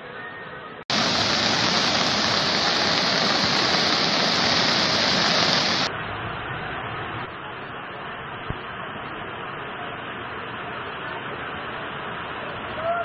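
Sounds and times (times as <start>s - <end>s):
floodwater rushing: 0.9s - 5.9s
heavy rain: 0.9s - 13.0s.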